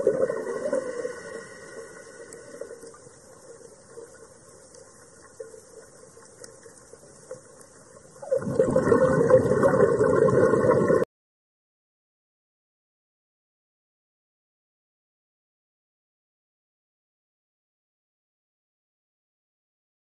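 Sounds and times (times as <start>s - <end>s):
underwater rushing hiss: 0.0s - 3.0s.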